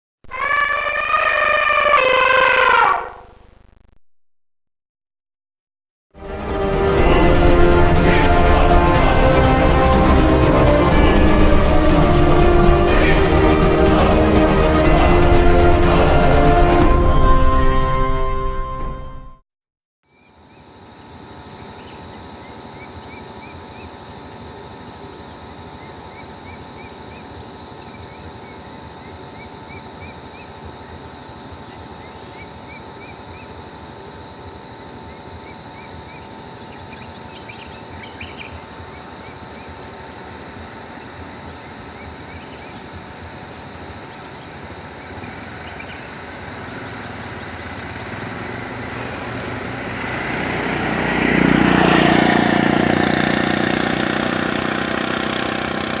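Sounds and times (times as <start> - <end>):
birds chirping and trilling: 25.2 - 31.0, 31.6 - 49.8
vehicle engine hum: 38.6 - 56.0.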